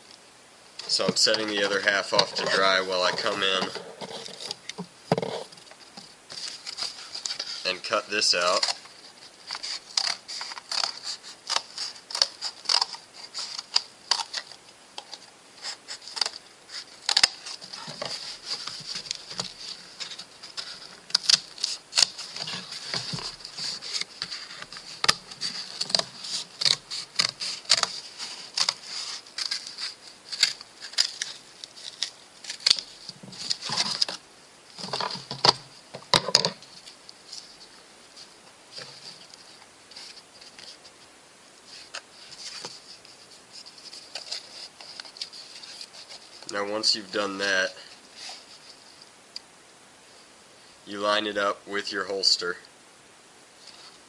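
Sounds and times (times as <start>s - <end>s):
blade cutting cardboard: 8.4s - 14.5s.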